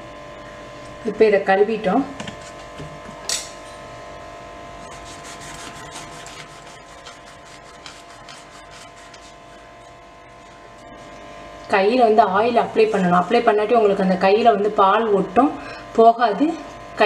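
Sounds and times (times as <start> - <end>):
knife sawing through fruit rind: 4.8 - 9.7.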